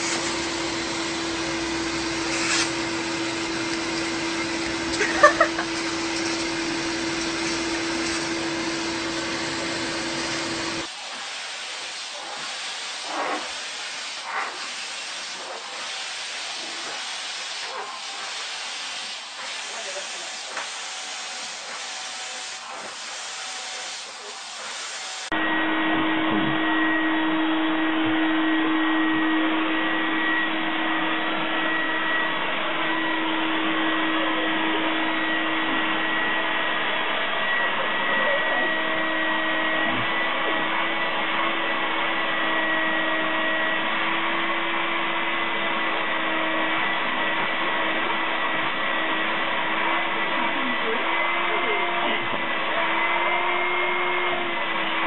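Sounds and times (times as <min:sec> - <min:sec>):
vacuum cleaner running: 0:00.0 - 0:55.0.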